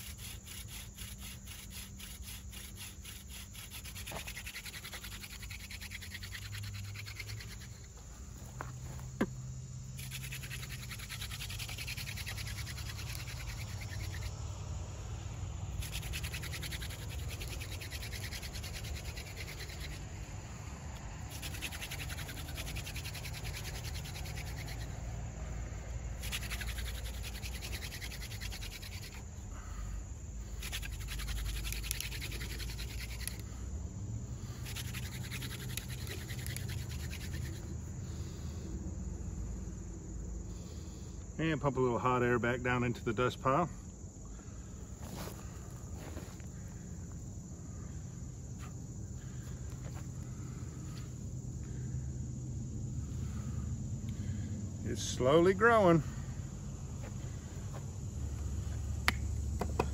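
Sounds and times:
spindle rasping on wood: 0.0 - 7.8, 10.0 - 14.4, 15.8 - 20.1, 21.3 - 25.0, 26.2 - 29.2, 30.6 - 33.4, 34.6 - 37.6.

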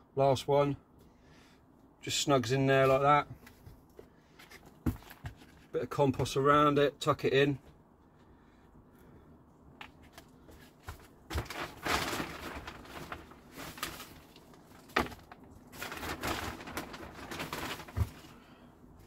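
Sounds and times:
compost scraping and pouring: 11.3 - 18.6.

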